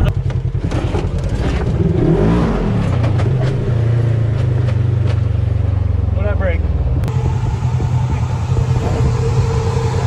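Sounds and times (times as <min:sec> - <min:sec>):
knocks and rattles over bumps: 0:00.0 - 0:02.0, 0:02.8 - 0:05.5
vehicle engine running: 0:00.0 - 0:10.0.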